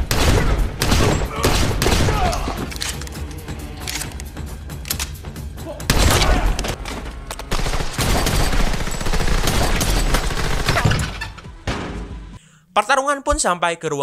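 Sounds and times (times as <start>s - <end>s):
heavy gunfire: 0.0s - 2.6s, 7.5s - 10.9s
shotgun blasts: 0.0s - 2.7s.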